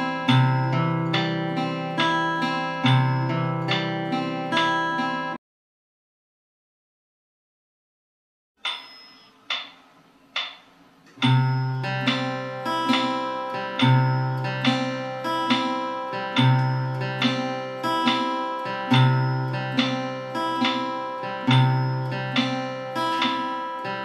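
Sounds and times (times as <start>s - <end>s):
count-in clicks: 0.0s - 5.1s, 8.6s - 24.0s
fingerpicked acoustic guitar: 0.0s - 5.4s, 11.2s - 24.0s.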